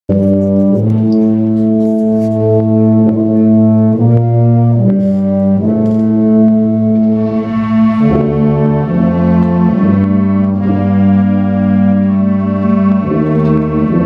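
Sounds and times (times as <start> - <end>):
low brass: 0.1 - 14.0
school band playing sustained chords: 0.1 - 14.0.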